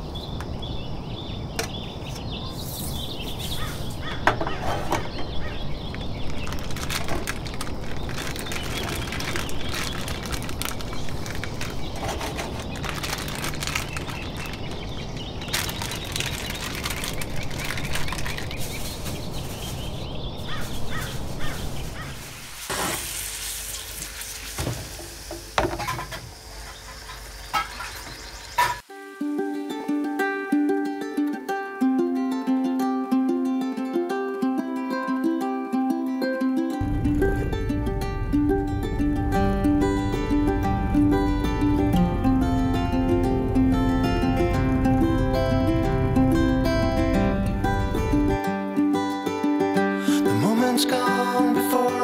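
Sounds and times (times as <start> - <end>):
food sizzling in a frying pan: 22.0 - 28.8.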